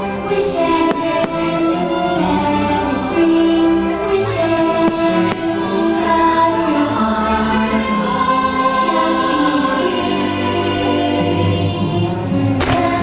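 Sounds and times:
faint fireworks crackling: 0:00.0 - 0:07.7, 0:09.4 - 0:13.0
music with choir singing: 0:00.0 - 0:13.0.

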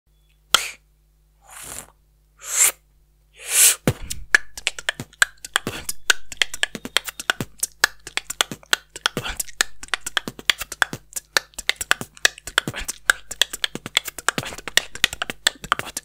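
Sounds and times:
breathy beatbox hisses: 0:00.5 - 0:00.8, 0:01.4 - 0:02.8, 0:03.4 - 0:16.0
beatbox kicks and clicks: 0:03.5 - 0:16.0.

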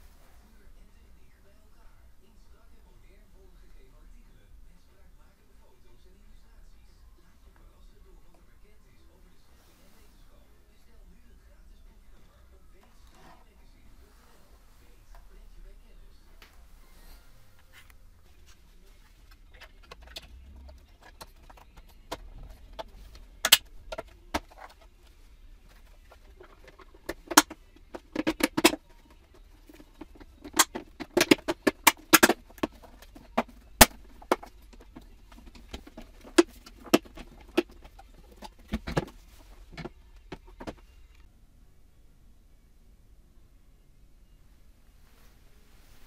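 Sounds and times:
sharp plastic clicks: 0:22.8 - 0:24.1, 0:30.0 - 0:34.5.

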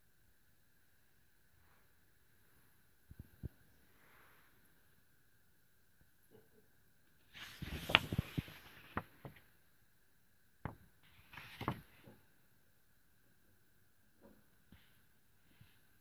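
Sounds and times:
paper crackles: 0:07.3 - 0:09.4, 0:11.2 - 0:12.0
book pages rustling: 0:07.3 - 0:09.5, 0:11.0 - 0:12.2.

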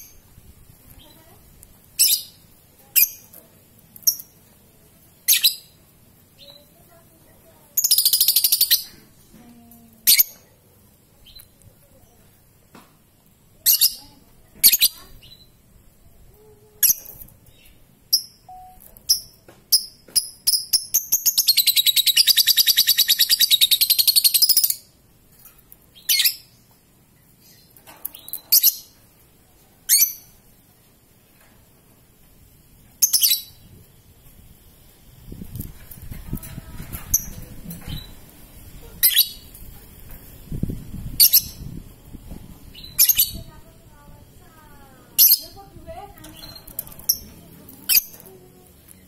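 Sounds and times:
bird chirping: 0:16.8 - 0:24.9.

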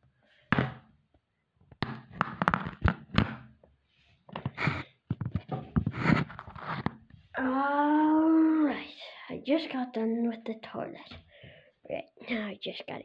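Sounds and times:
phone being handled: 0:01.8 - 0:03.3, 0:04.3 - 0:07.0.

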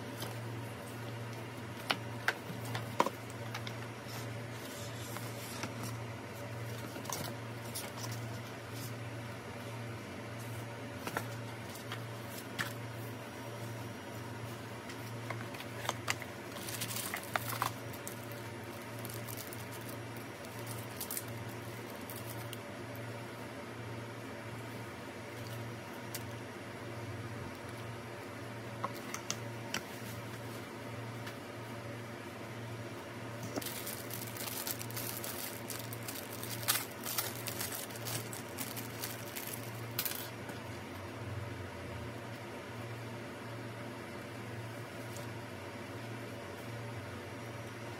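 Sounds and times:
steady low hum: 0:00.0 - 0:47.9
paper and cardboard rustling: 0:14.9 - 0:21.3, 0:33.4 - 0:40.3
plastic wrapping crinkling: 0:15.0 - 0:22.6, 0:33.4 - 0:40.4.

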